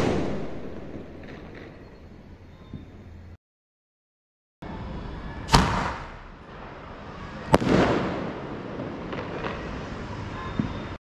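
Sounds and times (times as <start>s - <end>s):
firework bangs with echo: 0.0s - 1.9s, 5.5s - 11.0s
faint firework pops: 7.5s - 9.6s.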